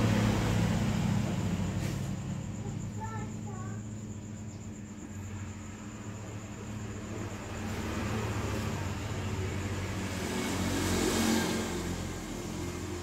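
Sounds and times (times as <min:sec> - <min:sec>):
vehicle engine passing by: 0:00.0 - 0:03.0, 0:05.6 - 0:13.0
steady low hum: 0:00.0 - 0:13.0.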